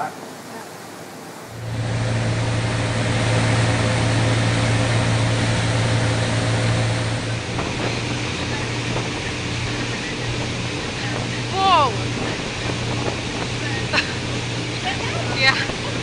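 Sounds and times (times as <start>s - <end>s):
rushing water: 0.0s - 16.0s
wind: 0.0s - 16.0s
motorboat engine drone: 1.5s - 16.0s.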